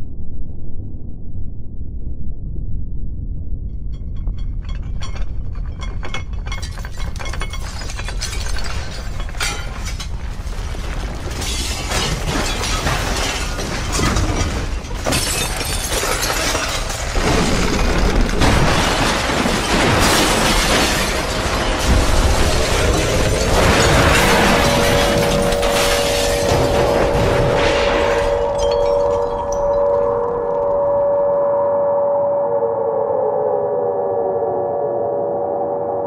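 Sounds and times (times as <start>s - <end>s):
deep steady rumble: 0.0s - 7.6s
crackling and shattering: 3.9s - 30.8s.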